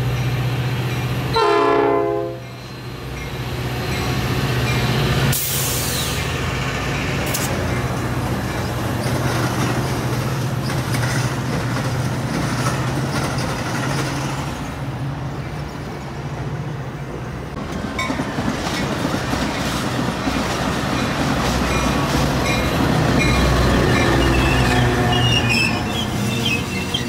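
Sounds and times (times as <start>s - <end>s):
train rumbling past: 0.0s - 27.0s
wheels clacking on rail joints: 7.2s - 14.6s, 17.5s - 27.0s
high wheel squeals: 22.6s - 27.0s.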